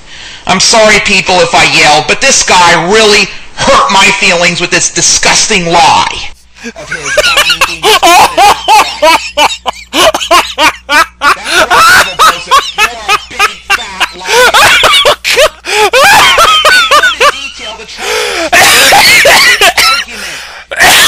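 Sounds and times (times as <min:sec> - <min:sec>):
person laughing uncontrollably: 0:06.6 - 0:20.1, 0:20.7 - 0:21.0.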